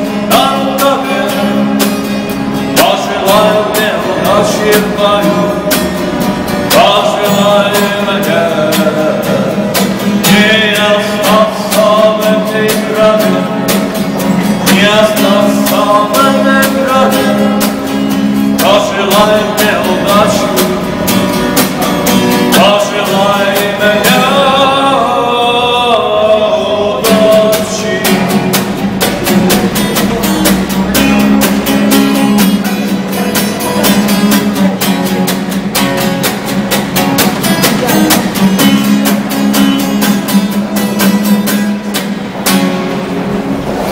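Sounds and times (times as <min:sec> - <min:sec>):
man singing: 0:00.0 - 0:34.8
acoustic guitar strumming: 0:00.0 - 0:43.9.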